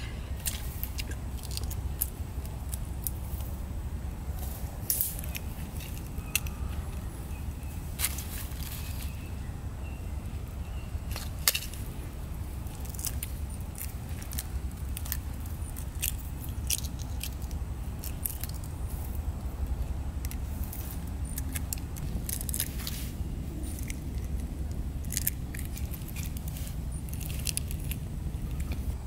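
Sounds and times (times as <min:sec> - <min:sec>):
steady low rumble: 0:00.0 - 0:29.0
eggshells cracking: 0:00.4 - 0:03.5, 0:12.6 - 0:23.0, 0:23.6 - 0:28.9.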